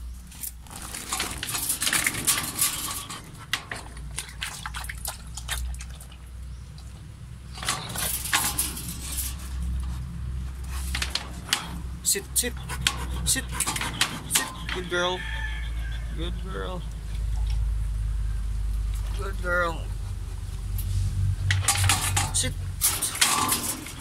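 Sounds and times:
dog lapping water from metal bowl: 3.0 - 6.4.

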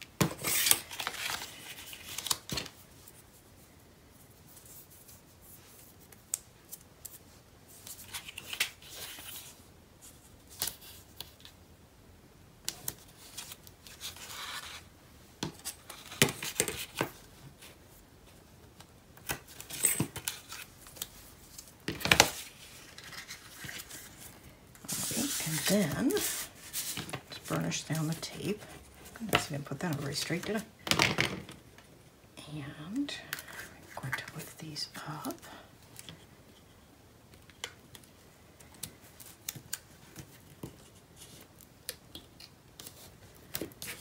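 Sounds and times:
paper handling: 0.3 - 2.8, 19.2 - 30.7.

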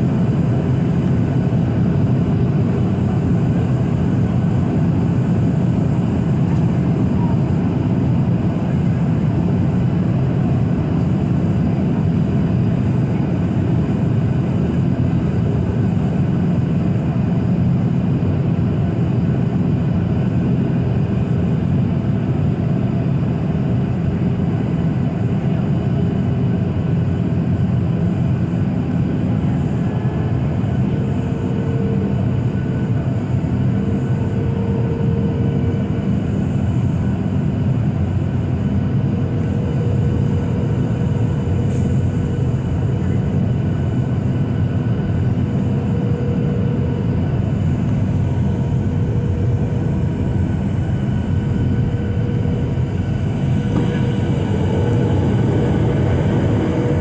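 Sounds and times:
airplane cabin noise: 0.0 - 57.0
faint higher hum: 26.9 - 57.0.

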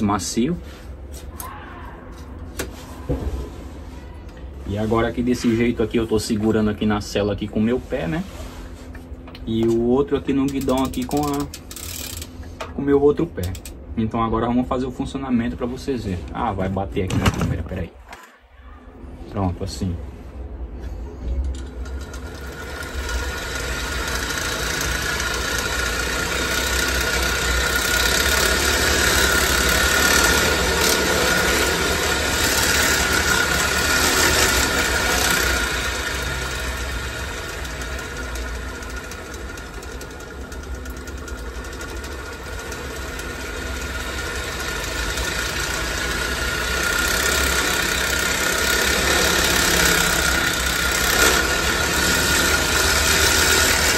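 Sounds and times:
bicycle wheel whirring: 10.4 - 12.6, 21.6 - 53.9.

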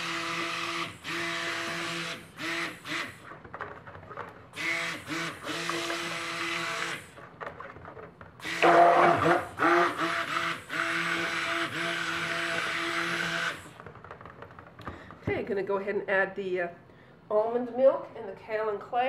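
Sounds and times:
stick blender motor whirring: 0.0 - 14.4.

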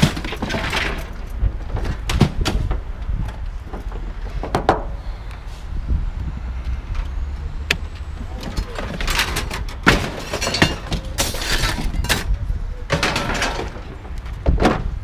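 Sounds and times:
steady low rumble: 1.0 - 15.0
scrap metal clattering: 8.6 - 12.3, 12.9 - 14.1.

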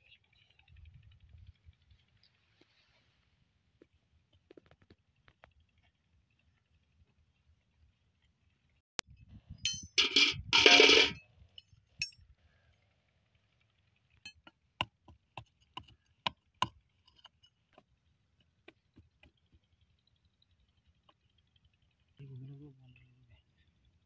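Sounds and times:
sharp metal clinks: 9.6 - 12.2.

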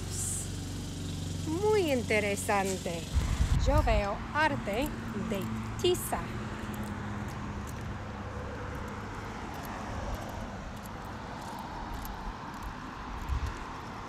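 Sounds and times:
faint irregular ticks: 4.6 - 14.0.

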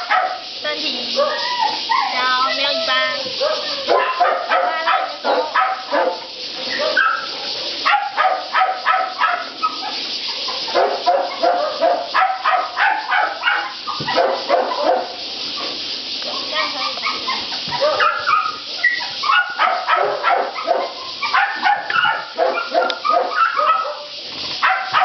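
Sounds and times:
dogs barking: 0.0 - 25.0
dog yips: 1.2 - 7.3, 16.3 - 25.0.

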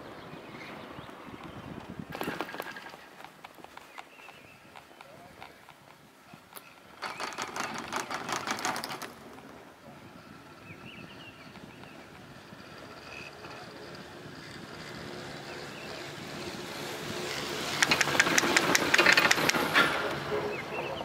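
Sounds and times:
chairlift rope clattering over rollers: 5.4 - 9.8, 17.7 - 20.2.

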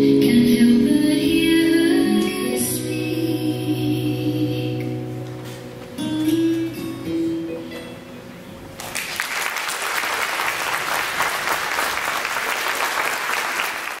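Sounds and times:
audience applause: 8.8 - 14.0.

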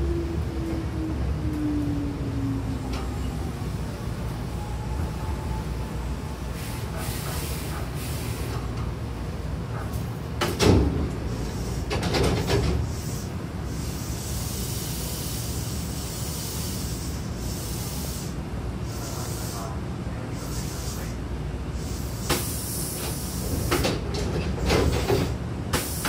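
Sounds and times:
low hum of standing train: 0.0 - 26.0
train doors sliding open: 2.7 - 18.1, 18.8 - 26.0
loud clunk and rush: 9.7 - 11.2.

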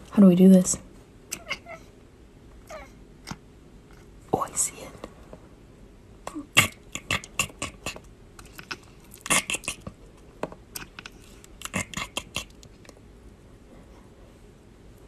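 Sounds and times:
cat chattering: 1.3 - 1.8, 6.3 - 9.9, 10.8 - 12.9.

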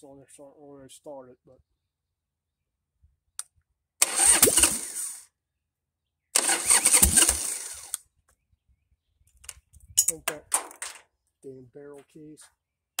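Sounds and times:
motorcycle electric starter cranking: 4.0 - 5.2, 6.4 - 8.0.

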